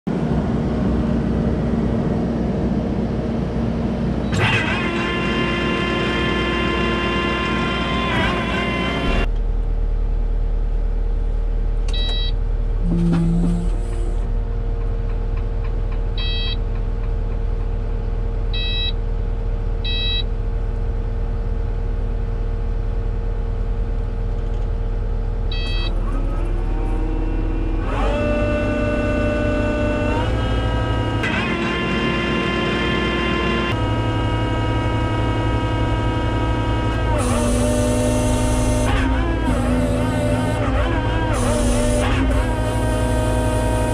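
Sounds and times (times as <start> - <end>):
diesel engine running: 0.0 - 43.9
steady whine: 0.1 - 43.9
short beeps: 11.9 - 13.7, 16.2 - 16.6, 18.6 - 19.0, 19.8 - 20.3, 25.5 - 26.0.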